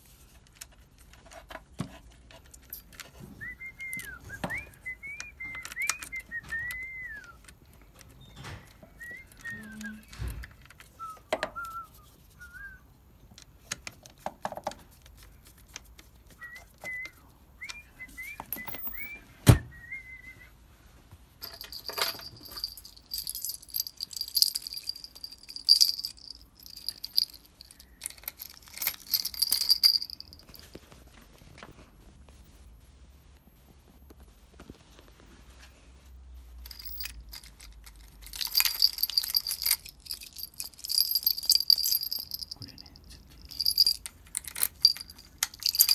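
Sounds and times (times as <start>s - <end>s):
keys jangling on a key ring: 18.4s - 19.1s, 21.4s - 30.6s, 36.7s - 45.9s.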